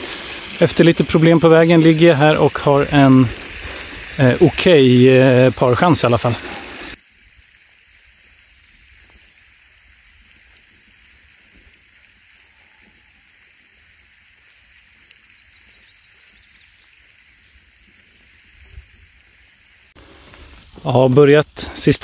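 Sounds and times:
faint hiss: 0:00.0 - 0:22.0
faint ticks: 0:15.0 - 0:15.4.

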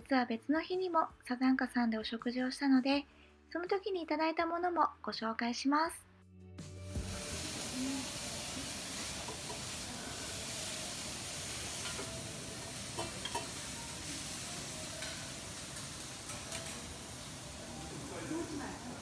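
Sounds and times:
food sizzling on griddle: 0:06.8 - 0:19.0.

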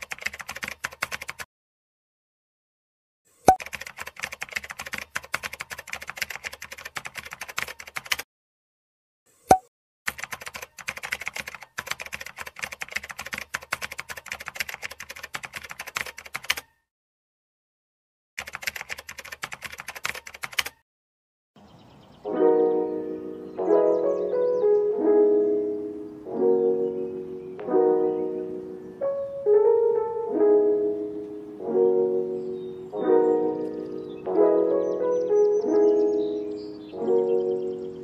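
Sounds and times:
keyboard key clicks: 0:15.4 - 0:16.7, 0:18.4 - 0:20.8.

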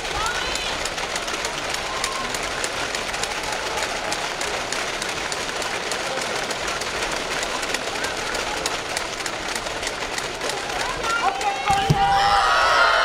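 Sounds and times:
crowd din: 0:00.0 - 0:13.0
people clapping: 0:00.0 - 0:13.0.

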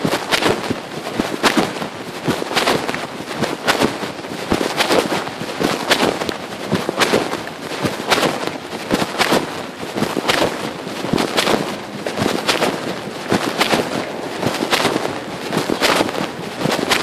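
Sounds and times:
fabric scraping phone microphone: 0:00.0 - 0:17.0.

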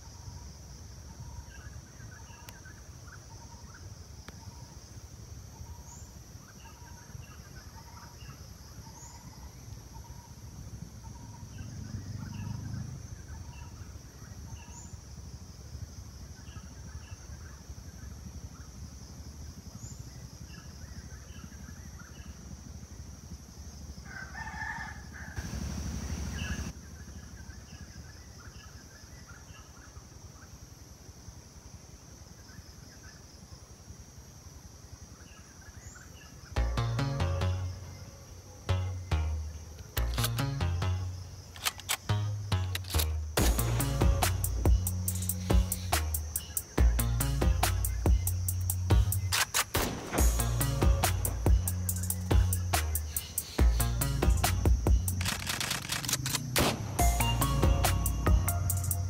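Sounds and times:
insect drone: 0:00.0 - 0:59.0
rooster crowing: 0:24.0 - 0:25.6.

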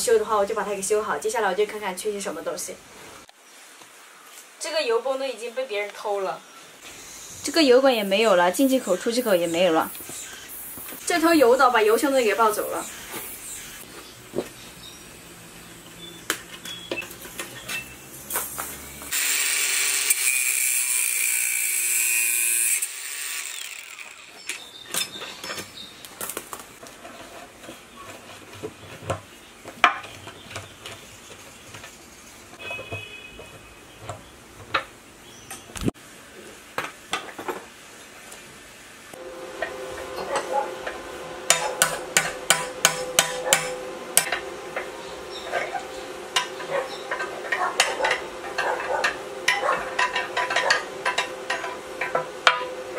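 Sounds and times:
loud hiss: 0:06.8 - 0:11.3.

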